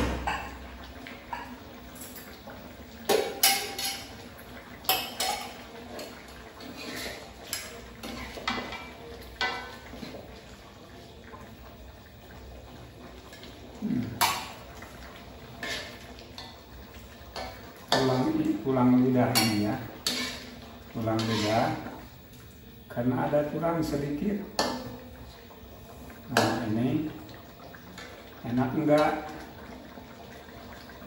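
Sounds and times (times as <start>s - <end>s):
metal utensil scraping a wok: 6.6s - 8.6s, 15.6s - 16.5s, 19.3s - 21.8s.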